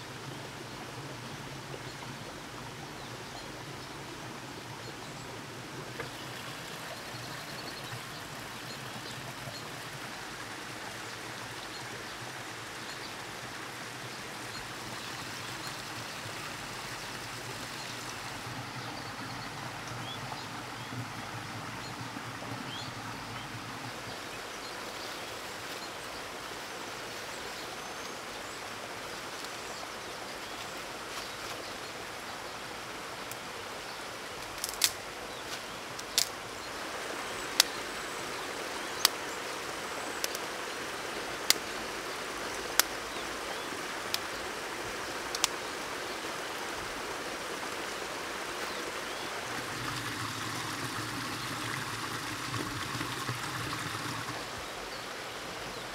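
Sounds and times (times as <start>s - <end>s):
creek trickling: 0.0s - 55.9s
sticks clicking and snapping: 34.4s - 35.0s, 36.0s - 36.4s, 45.4s - 45.6s.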